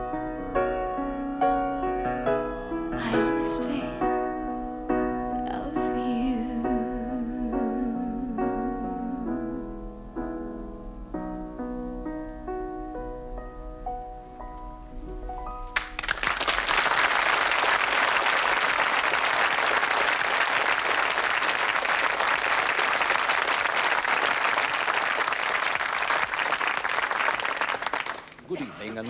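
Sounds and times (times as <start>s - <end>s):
audience applauding: 3.0s - 3.8s, 15.8s - 29.0s.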